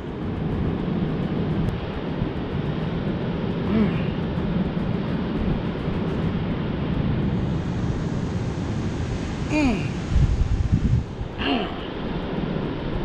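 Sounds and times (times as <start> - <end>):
wind rumbling on microphone: 0.0 - 13.0
brief vocal sound: 9.5 - 10.0.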